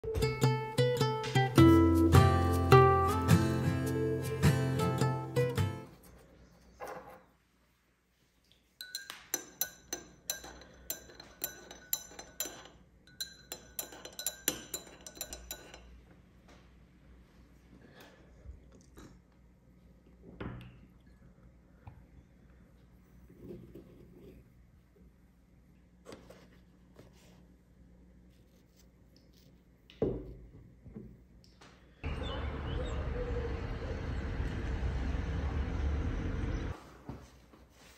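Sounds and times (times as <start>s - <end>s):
faint steady hum: 5.9s - 37.9s
glassware clinking: 8.8s - 15.9s
faint rustles and scrapes: 22.7s - 25.2s, 26.0s - 29.9s.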